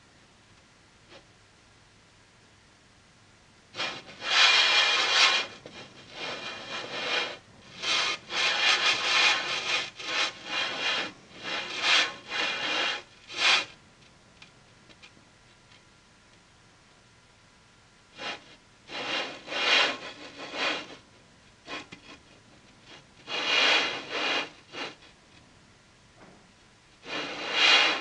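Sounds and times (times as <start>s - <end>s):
rough scraping strokes: 3.8s - 13.7s, 18.2s - 21.0s, 21.7s - 25.2s, 27.0s - 28.0s.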